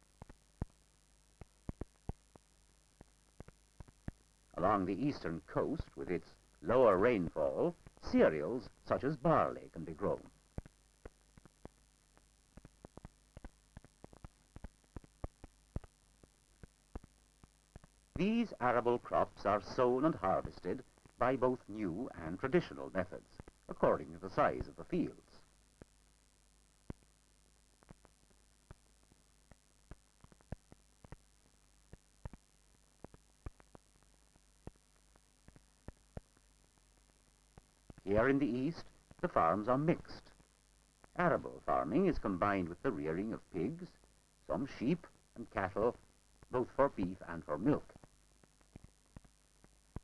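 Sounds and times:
faint steady hum: 0.0s - 50.0s
film soundtrack clicks and pops: 0.1s - 4.7s, 9.9s - 18.2s, 26.8s - 27.1s, 27.7s - 38.1s, 47.6s - 50.0s
film clicks and pops: 10.5s - 18.0s.

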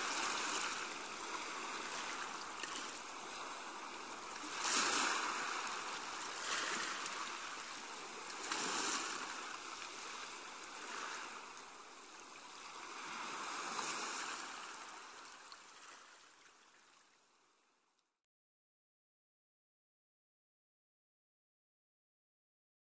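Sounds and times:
small waves washing onto beach: 0.0s - 17.2s.

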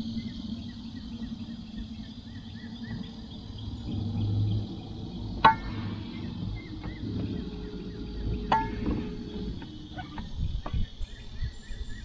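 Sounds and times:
high insect chorus: 0.0s - 12.0s.

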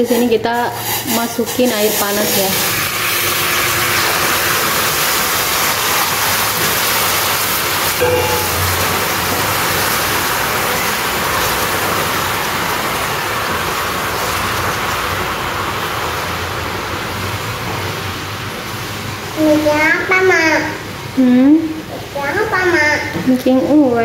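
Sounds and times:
caramel boiling and bubbling: 0.0s - 20.6s.

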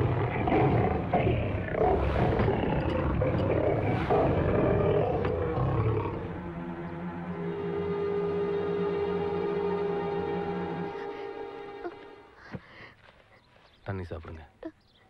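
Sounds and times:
lion-like roaring and growling: 0.0s - 10.9s.

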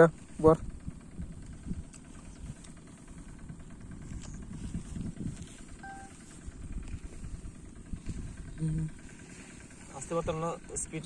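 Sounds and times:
wind buffeting microphone: 0.6s - 2.7s, 3.5s - 5.8s, 6.4s - 9.1s
faint tone: 5.8s - 6.2s.

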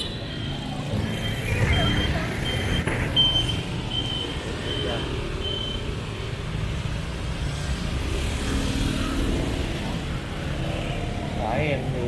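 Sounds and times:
high electronic beep: 0.0s - 6.0s
street traffic rumble: 0.0s - 12.0s.

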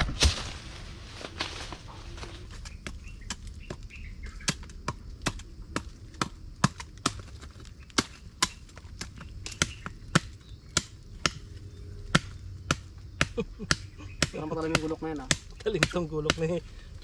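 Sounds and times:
knives chopping bamboo: 7.9s - 11.4s, 12.1s - 16.6s.

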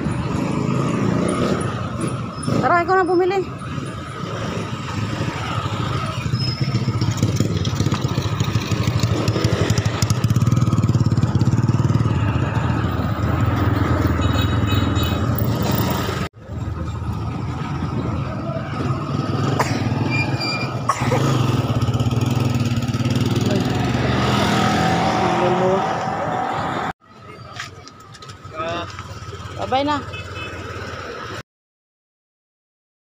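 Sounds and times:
small motorcycle engine running: 5.6s - 12.4s.

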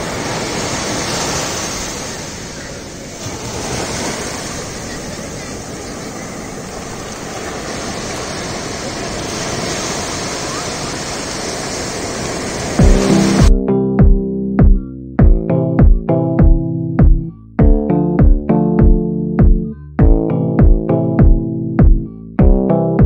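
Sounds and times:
waves breaking on beach: 0.0s - 13.5s.

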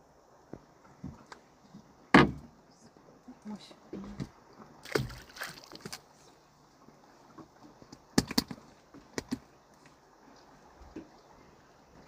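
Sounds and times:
knocks against boat: 2.1s - 2.5s.

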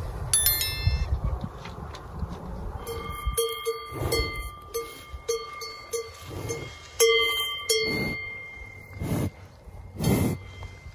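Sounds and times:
cowbell clanking: 0.4s - 1.1s, 2.8s - 9.0s.

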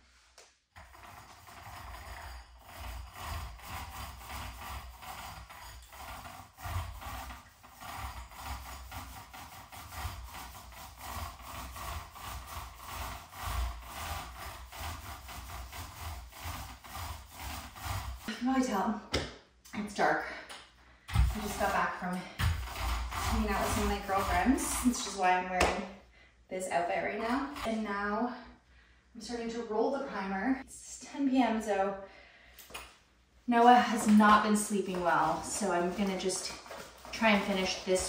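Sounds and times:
paint roller rubbing on wall: 0.0s - 18.8s, 21.0s - 25.9s, 26.6s - 28.1s, 33.5s - 38.0s.

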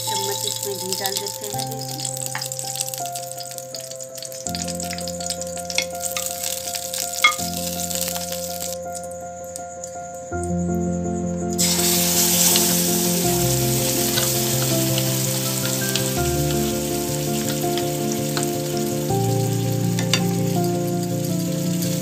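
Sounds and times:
puree sizzling in a pan: 0.0s - 10.0s, 11.5s - 22.0s
background music of held chords: 0.0s - 22.0s.

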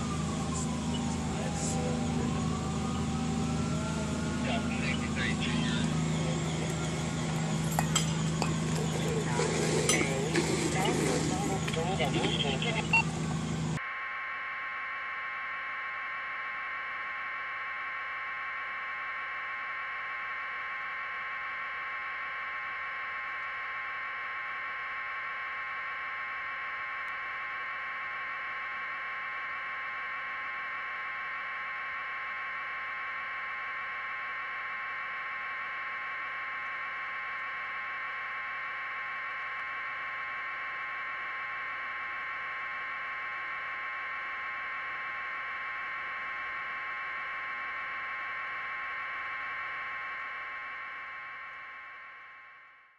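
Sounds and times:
high even hum: 0.0s - 52.2s
steady electronic hiss: 4.4s - 13.8s.

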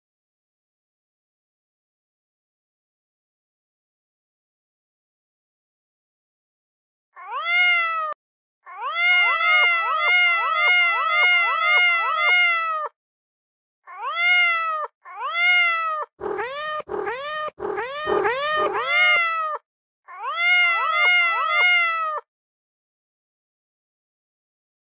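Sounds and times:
cat meowing rapidly: 7.2s - 12.9s, 13.9s - 22.2s.

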